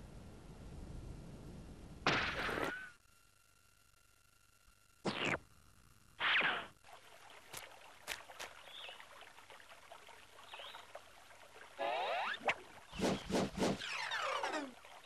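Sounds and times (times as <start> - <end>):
trickling stream: 6.8 - 15.0
sliding swoop: 12.9 - 14.1
cartoon noises: 13.8 - 14.8.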